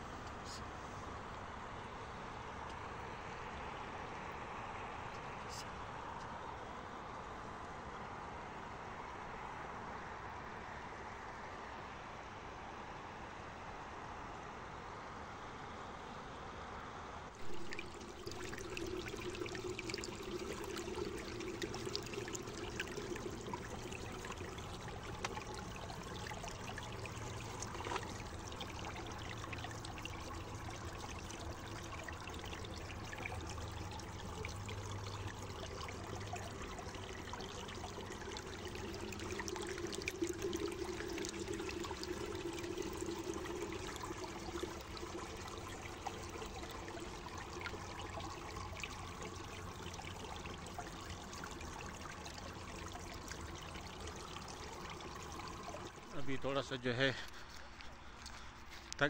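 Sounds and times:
water flowing over stones: 17.4s - 59.0s.

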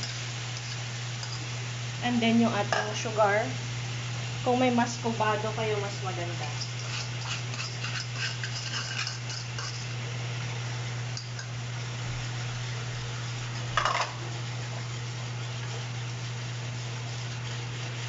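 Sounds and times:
whisk scraping frying pan: 0.0s - 1.6s, 5.3s - 10.1s, 11.1s - 18.0s.

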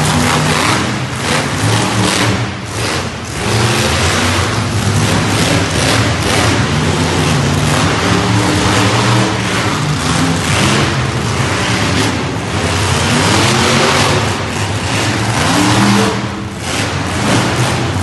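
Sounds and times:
monster truck engines revving: 0.0s - 18.0s.

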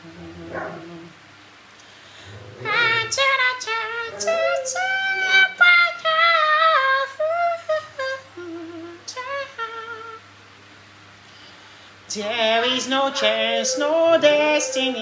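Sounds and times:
man singing unaccompanied: 2.6s - 10.2s, 12.1s - 15.0s.

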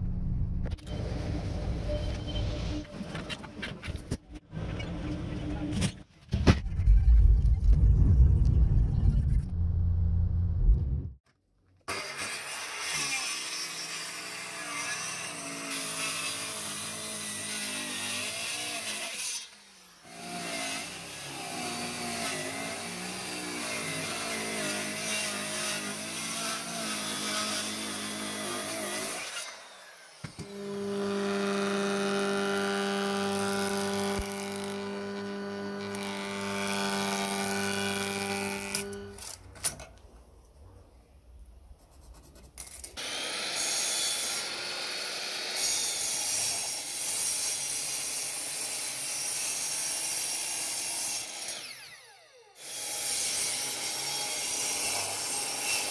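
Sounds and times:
circular saw cutting wood: 11.9s - 39.4s, 42.9s - 55.9s
planer motor humming: 30.4s - 39.2s.

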